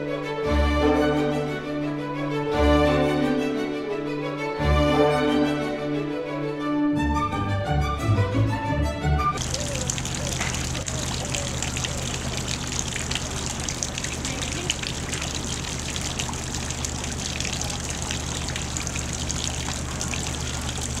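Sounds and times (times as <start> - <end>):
fountain water trickling: 9.4 - 21.0.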